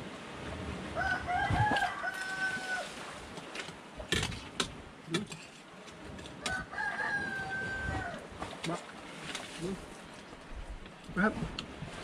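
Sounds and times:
rooster crowing: 1.0s - 2.9s, 6.4s - 8.2s.

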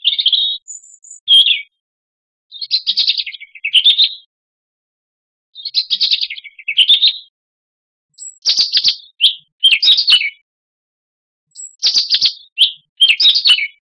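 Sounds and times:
robin singing: 0.0s - 1.8s, 2.5s - 4.3s, 5.6s - 7.3s, 8.1s - 10.4s, 11.5s - 13.8s.

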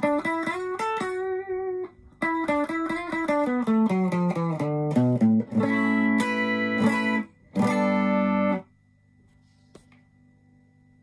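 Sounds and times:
electric guitar notes and chords: 0.0s - 8.7s
faint amp hum: 0.0s - 11.0s.

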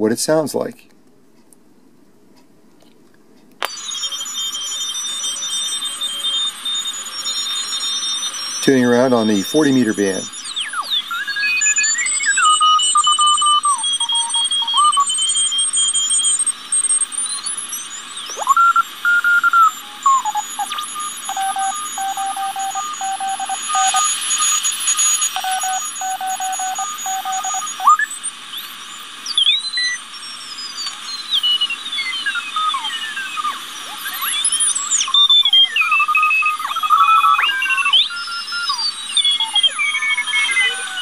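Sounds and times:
morse code signal: 3.6s - 41.0s
radio hiss: 8.5s - 11.1s, 17.4s - 35.0s, 37.0s - 41.0s
whistling tones sliding in pitch: 31.2s - 41.0s.

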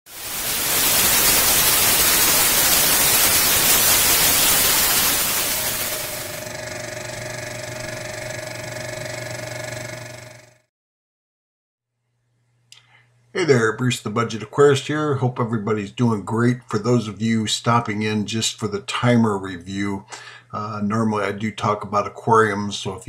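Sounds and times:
static-like white noise hiss: 0.1s - 6.4s.

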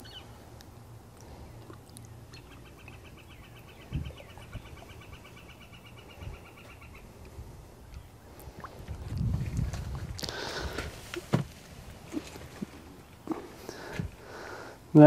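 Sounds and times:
bird trilling: 0.0s - 0.3s
steady low rumble: 0.0s - 14.4s.

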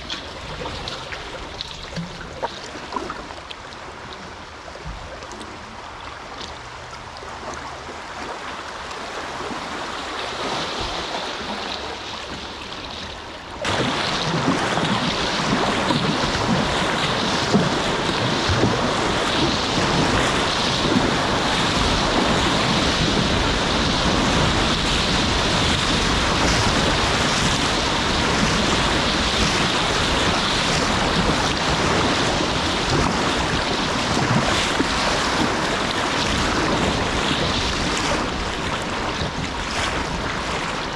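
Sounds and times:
rushing splashing river water: 0.0s - 40.9s
wind buffeting microphone: 13.6s - 40.9s.

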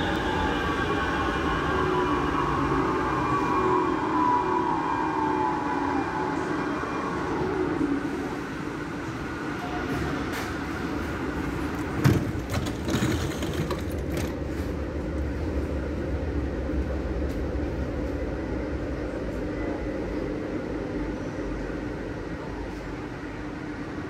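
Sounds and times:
train equipment hum and rumble: 0.0s - 24.0s.

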